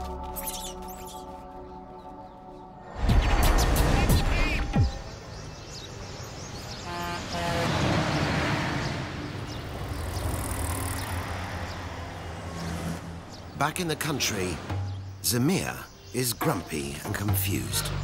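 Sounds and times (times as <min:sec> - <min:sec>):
vehicles passing: 0:04.9 - 0:18.0
car horn tooting: 0:06.8 - 0:07.9.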